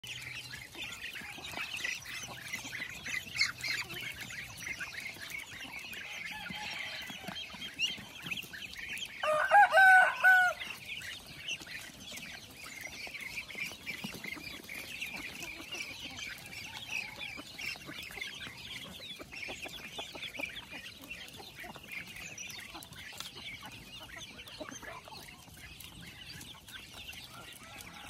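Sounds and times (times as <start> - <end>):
ducklings and chicks peeping: 0.0 - 28.0
rooster crowing: 6.1 - 7.4, 9.2 - 10.7, 27.3 - 28.0.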